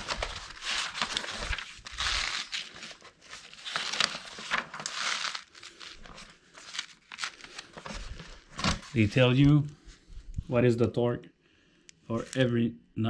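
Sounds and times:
paper pages rustling: 0:00.0 - 0:10.2.

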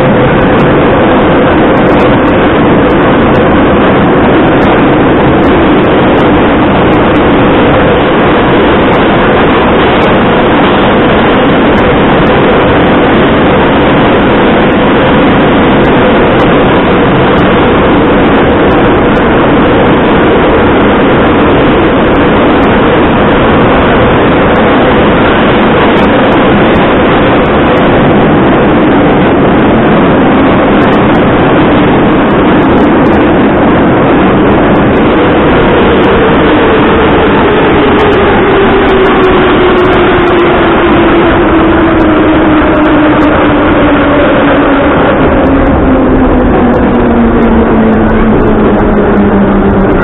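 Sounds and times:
droning hum: 0:00.0 - 0:50.0
subway train wheels din: 0:33.4 - 0:50.0.

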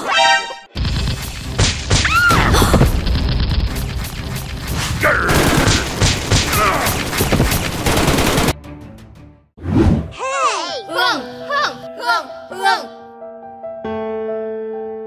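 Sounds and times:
rapid gunfire with booms: 0:00.8 - 0:08.6.

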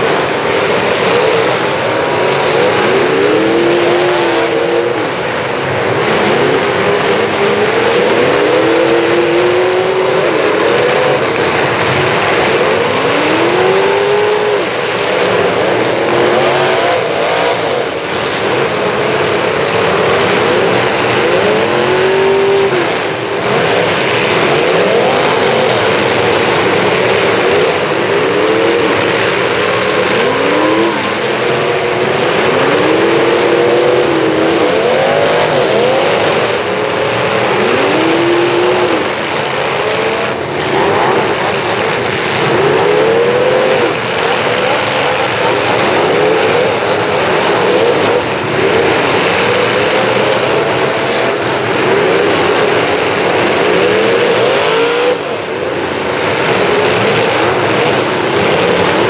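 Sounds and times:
car engines revving: 0:00.0 - 0:59.0.

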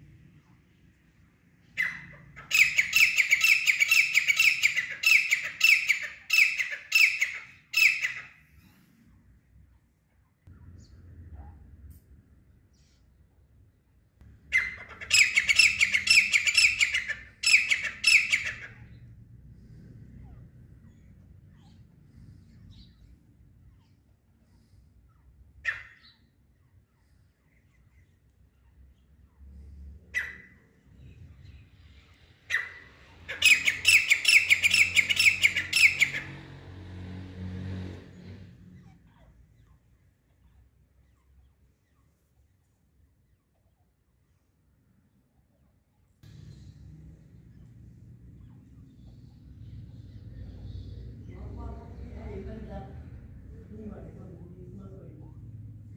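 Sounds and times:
francolin harsh repeated calls: 0:14.5 - 0:19.0, 0:32.4 - 0:36.4
low rumble: 0:46.2 - 0:55.9.

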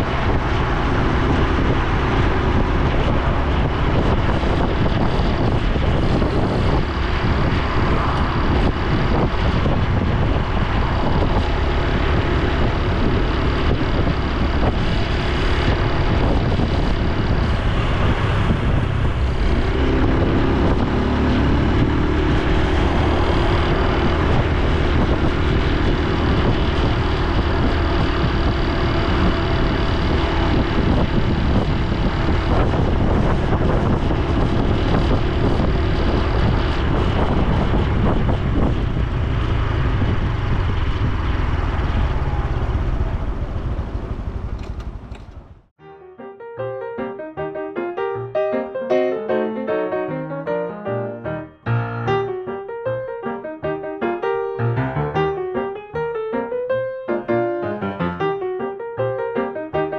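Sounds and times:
motorcycle engine running: 0:00.0 - 0:45.8
wind rushing over microphone: 0:00.0 - 0:45.8.

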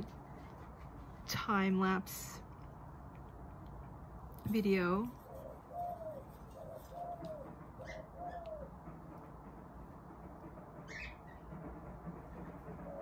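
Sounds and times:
dove cooing: 0:05.2 - 0:08.7, 0:12.7 - 0:13.0.

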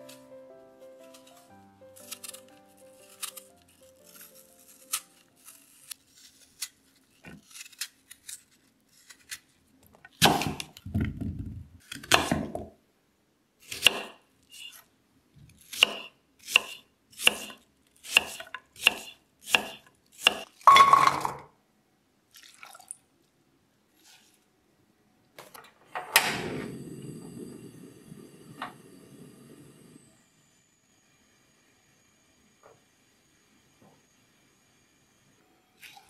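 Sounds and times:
knife peeling apple clicks: 0:02.0 - 0:09.4.

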